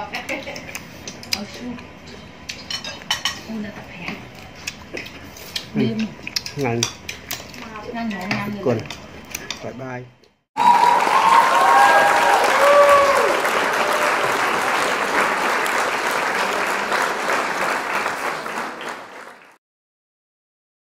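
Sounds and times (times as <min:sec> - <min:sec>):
crowd applause: 0:10.6 - 0:19.6.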